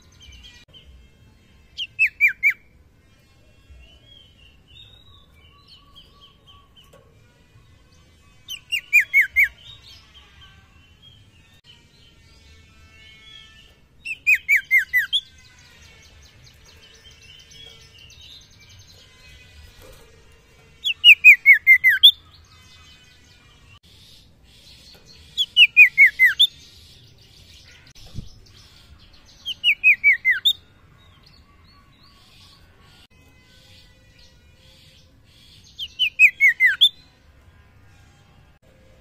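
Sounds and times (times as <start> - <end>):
bird singing whistled notes: 1.8 - 2.6, 8.5 - 10.0, 13.6 - 15.3, 20.8 - 22.3, 25.2 - 30.6, 35.6 - 37.0.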